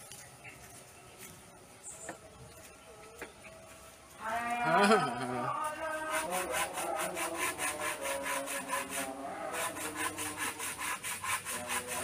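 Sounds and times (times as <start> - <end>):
hand saw cutting wood: 5.9 - 12.0.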